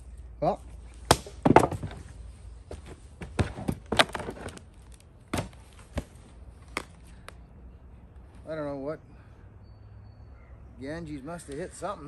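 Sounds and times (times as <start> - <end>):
handling knocks and rustles: 0.9 - 7.0.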